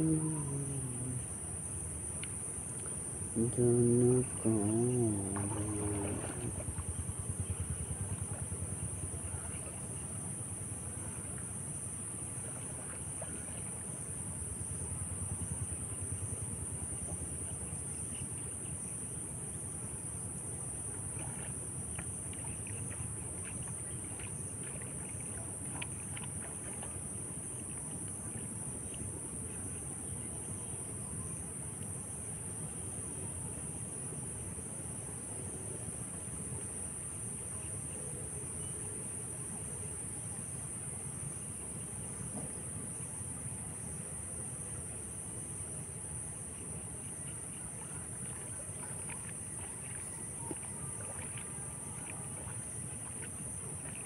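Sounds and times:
insects droning: 0.0s - 54.0s
wind rumbling on microphone: 3.3s - 9.5s
high-pitched insect drone: 3.4s - 6.5s.

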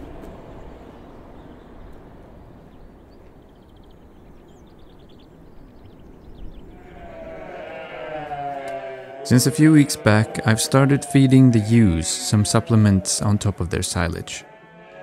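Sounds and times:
low rumble of wind: 0.0s - 7.7s
trilling bird song: 0.4s - 7.8s.

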